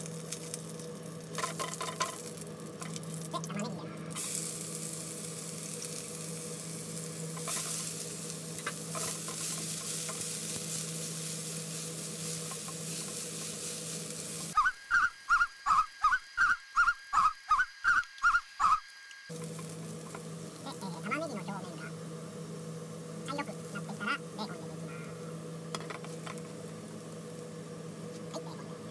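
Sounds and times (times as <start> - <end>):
onion sizzling in a frying pan: 0.0 - 16.5, 18.6 - 28.9
spatula stirring in pan: 7.4 - 14.6.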